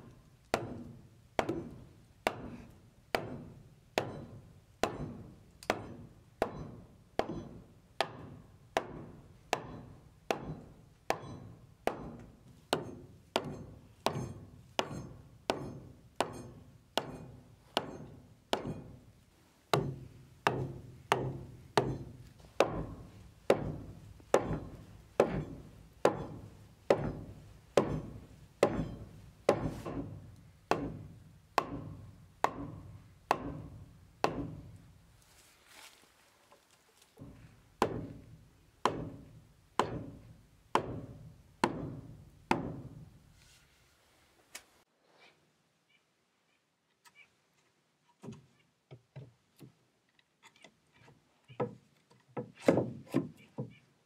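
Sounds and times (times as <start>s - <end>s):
hollow wooden knocks: 19.7s - 34.8s, 37.2s - 42.9s, 48.2s - 49.8s, 50.5s - 53.8s.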